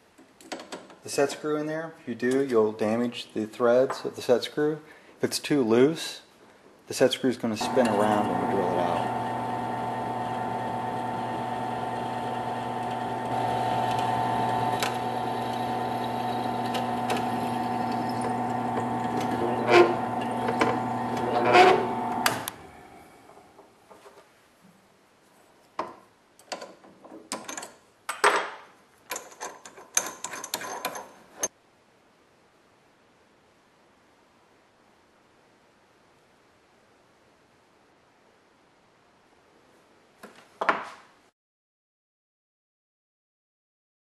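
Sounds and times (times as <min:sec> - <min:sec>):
drill bit scraping metal: 0:07.6 - 0:22.5
drill press motor whine: 0:07.6 - 0:23.6.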